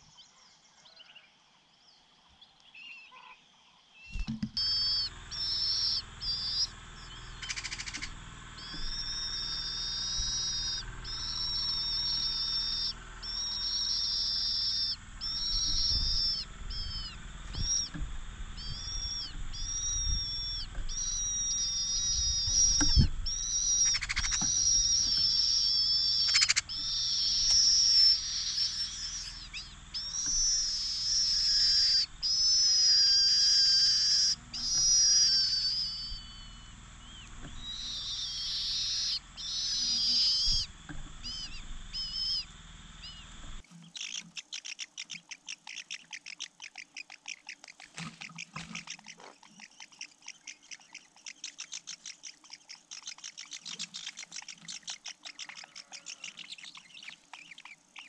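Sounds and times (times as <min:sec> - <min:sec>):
chick begging calls: 0:04.6 - 0:58.0
low thumps: 0:15.0 - 0:25.4.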